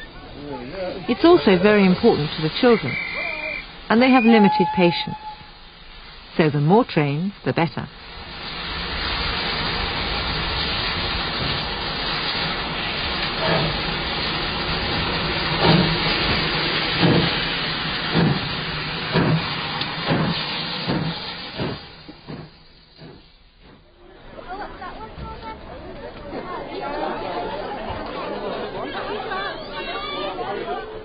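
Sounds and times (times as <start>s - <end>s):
locomotive exhaust chuffs: 0.0s - 29.6s
steam locomotive hissing: 0.0s - 31.0s.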